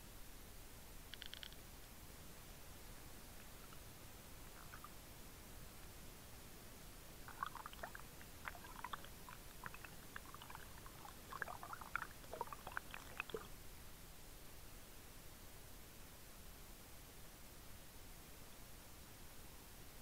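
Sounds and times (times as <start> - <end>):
water bubbling underwater: 7.3 - 13.5.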